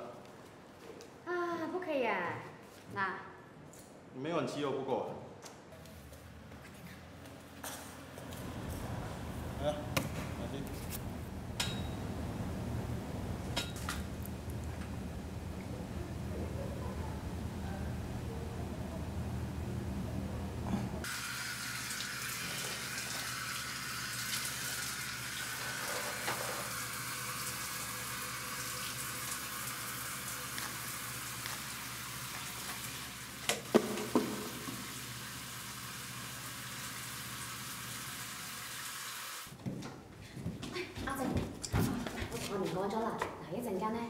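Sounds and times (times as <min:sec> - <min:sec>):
tap water running into basin: 0:21.0 - 0:39.5
hands washing under water: 0:28.7 - 0:35.0.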